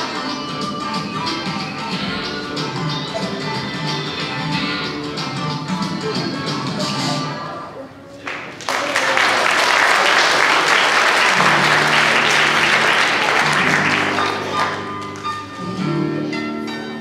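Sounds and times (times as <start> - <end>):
instrumental music with held notes: 0.0 - 7.9, 11.4 - 17.0
audience applauding: 8.2 - 15.5.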